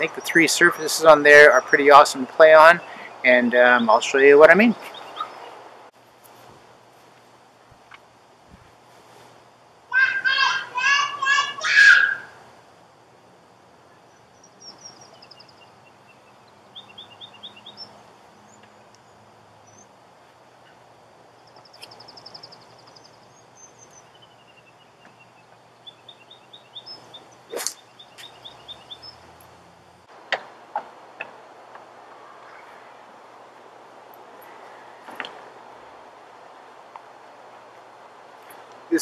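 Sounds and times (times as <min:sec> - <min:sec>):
birds chirping and trilling: 0:00.0 - 0:05.8, 0:13.8 - 0:19.9, 0:20.6 - 0:29.9, 0:32.0 - 0:33.3.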